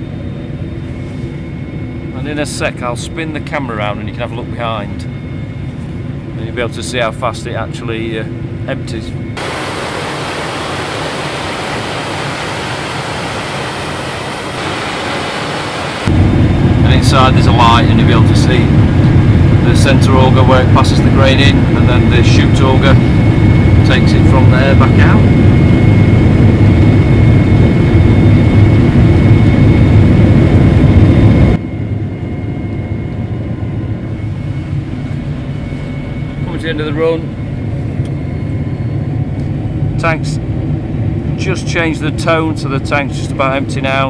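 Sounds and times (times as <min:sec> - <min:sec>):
muffled combine hum in cab: 0:00.0 - 0:32.4
steady rushing hiss: 0:09.4 - 0:16.3
combine harvester droning: 0:09.4 - 0:25.7.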